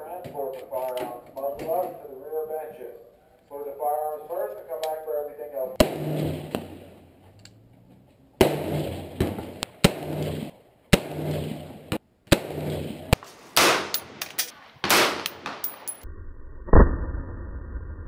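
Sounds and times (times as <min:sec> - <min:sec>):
rifle shots with ringing echo: 0:05.8 - 0:07.0, 0:08.4 - 0:16.0.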